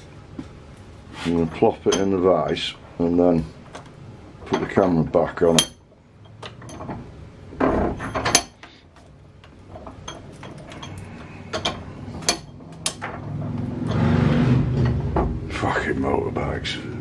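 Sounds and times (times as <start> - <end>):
motorbike passing: 13.2 - 15.8.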